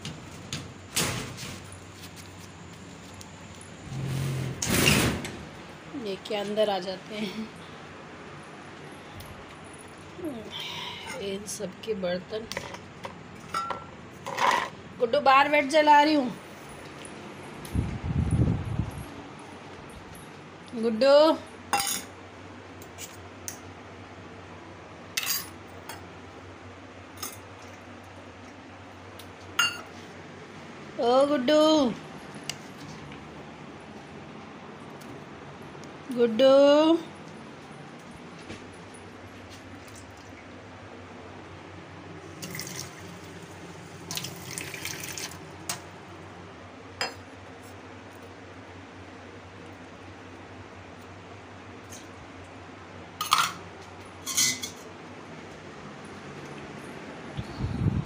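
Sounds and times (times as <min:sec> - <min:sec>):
low steady hum: 0:00.0 - 0:58.0
metal bowls and utensils clinking: 0:13.4 - 0:14.8, 0:21.8 - 0:22.1, 0:25.2 - 0:26.0, 0:29.6 - 0:29.9, 0:53.2 - 0:53.6, 0:54.2 - 0:54.9.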